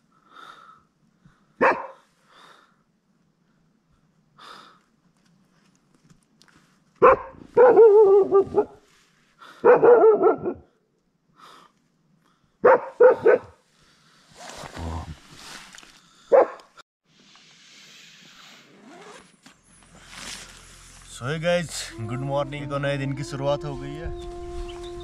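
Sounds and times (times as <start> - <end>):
dog barking: 1.6 - 2.0, 7.0 - 8.8, 9.6 - 10.7, 12.6 - 13.6, 16.3 - 16.7.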